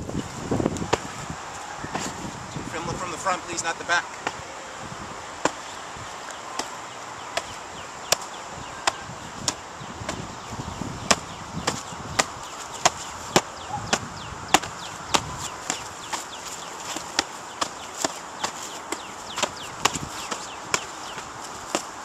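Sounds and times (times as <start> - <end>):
fists slapping padded shields: 4.2 - 4.4, 6.5 - 10.3, 11.0 - 22.0.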